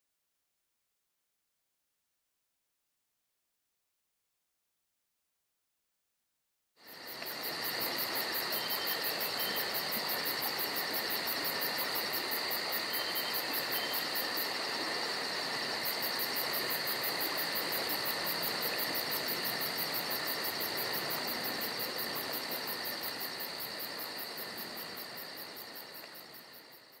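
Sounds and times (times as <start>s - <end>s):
crickets chirping: 6.8s - 27.0s.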